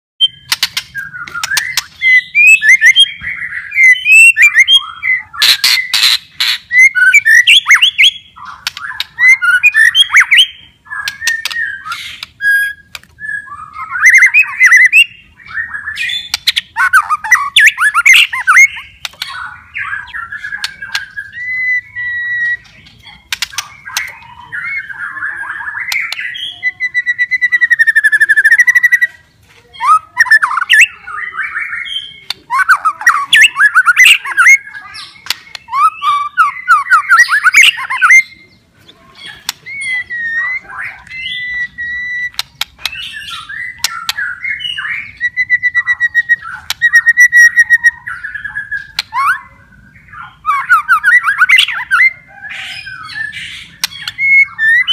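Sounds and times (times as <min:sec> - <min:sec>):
bird singing: 0:00.2 - 0:54.9
bird's sharp rattling clicks: 0:00.5 - 0:01.9, 0:23.3 - 0:24.2.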